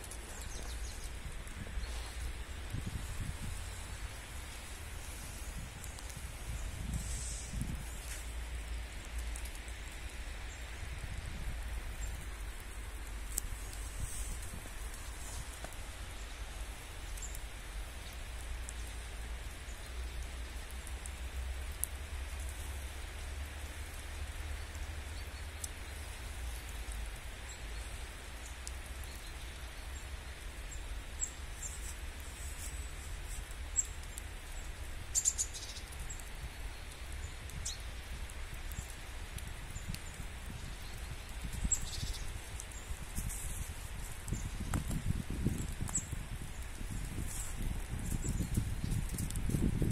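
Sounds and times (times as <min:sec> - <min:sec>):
wet snow hissing through trees: 0:00.0 - 0:49.9.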